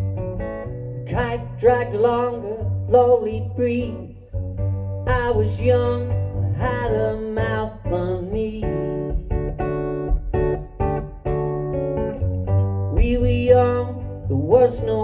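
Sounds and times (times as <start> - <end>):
acoustic guitar strumming: 0.0 - 15.0
man singing: 1.1 - 4.3, 5.0 - 9.4, 12.9 - 15.0.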